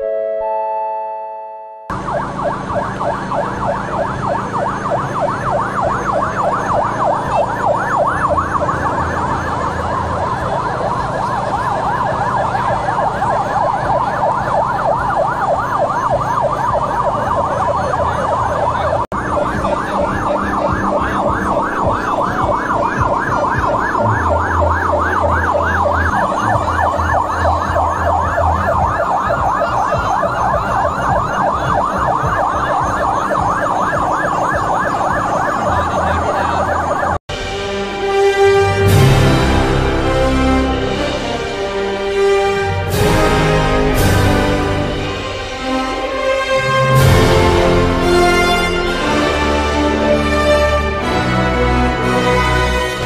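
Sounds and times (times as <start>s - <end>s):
fire engine yelp siren: 0.0s - 53.0s.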